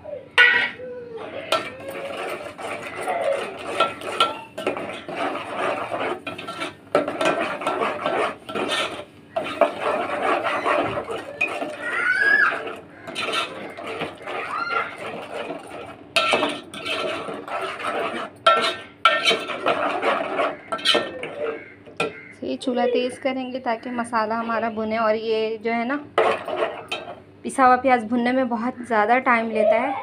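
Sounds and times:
metal spoon scraping a pot: 0:00.4 - 0:22.3, 0:26.1 - 0:27.2.

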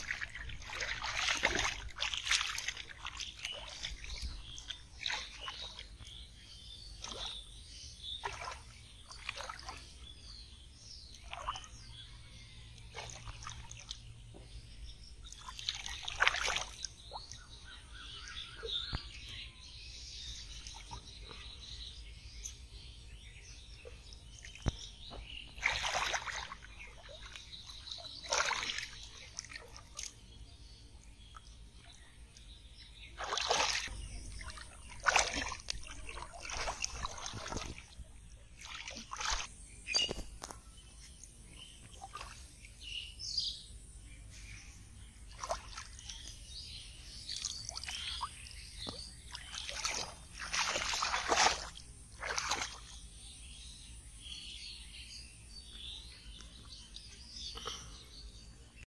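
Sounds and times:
hands splashing in muddy water: 0:00.0 - 0:10.3, 0:11.0 - 0:12.0, 0:12.7 - 0:14.3, 0:15.2 - 0:17.6, 0:24.4 - 0:30.4, 0:33.0 - 0:42.8, 0:45.3 - 0:53.2.

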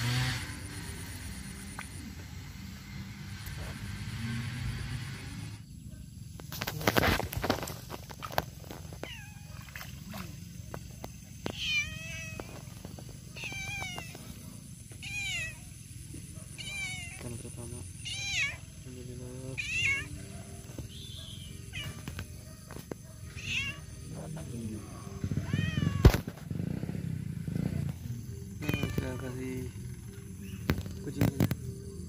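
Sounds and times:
cat meowing: 0:09.0 - 0:09.8, 0:11.4 - 0:12.7, 0:13.3 - 0:14.3, 0:15.0 - 0:15.6, 0:16.6 - 0:17.2, 0:18.0 - 0:18.7, 0:19.5 - 0:20.2, 0:21.4 - 0:22.2, 0:23.3 - 0:24.0, 0:24.9 - 0:26.3, 0:28.6 - 0:29.3.

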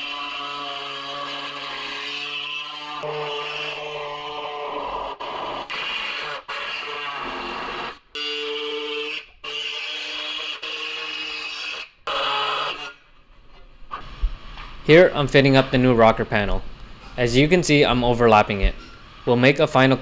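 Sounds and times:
air saw cutting sheet steel: 0:00.0 - 0:13.0.

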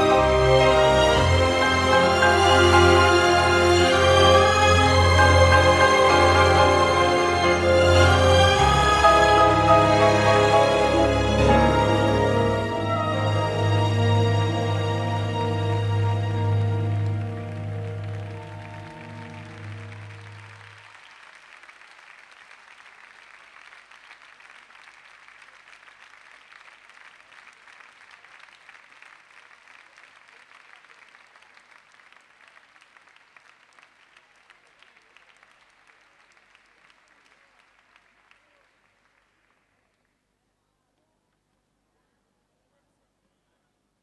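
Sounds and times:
music note: 0:00.0 - 0:20.7
audience applauding: 0:00.0 - 0:40.2.

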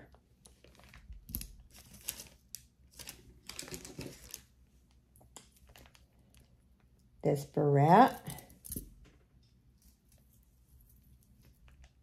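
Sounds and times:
jewelry clicking and clinking: 0:08.1 - 0:09.2.

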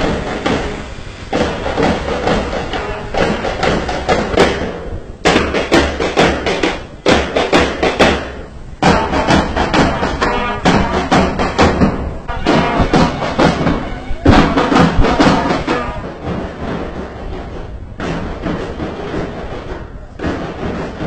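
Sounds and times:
marching band playing: 0:00.0 - 0:21.0
rapid side drum strokes: 0:00.0 - 0:21.0.

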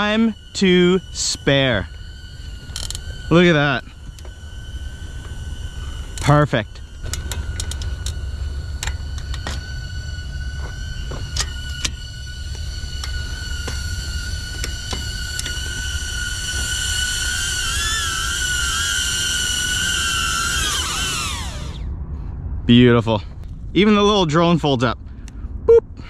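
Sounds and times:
drone propellers whining: 0:00.0 - 0:26.0
wind rumble on microphone: 0:19.4 - 0:26.0.

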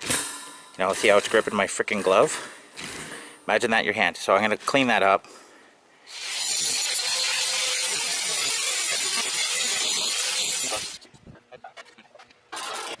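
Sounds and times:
angle grinder grinding metal: 0:06.1 - 0:11.0.

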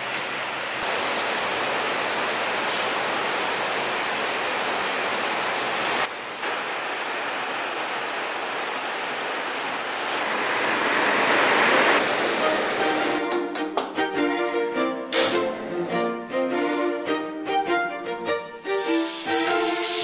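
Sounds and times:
steady rain: 0:00.0 - 0:13.2, 0:18.8 - 0:20.0.

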